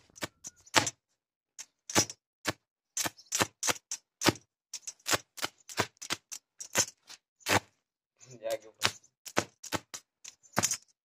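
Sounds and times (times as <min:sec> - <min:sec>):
welding arc crackling and popping: 0:03.0 - 0:07.6, 0:08.8 - 0:10.0.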